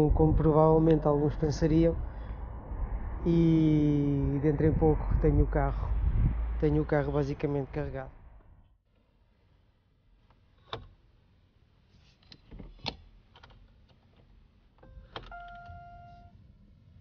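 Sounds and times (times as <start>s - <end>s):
dashboard chime: 15.3s - 16.3s.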